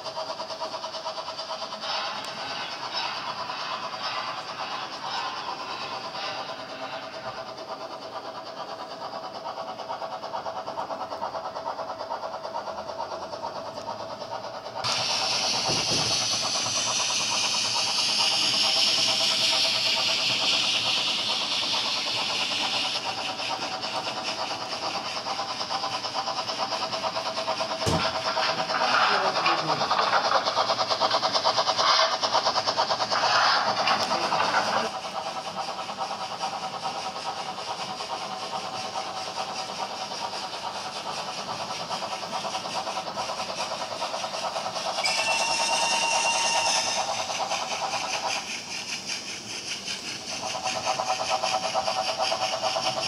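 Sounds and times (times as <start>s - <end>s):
model train motor whirring: 0.0s - 53.0s
loud hiss: 14.8s - 25.5s.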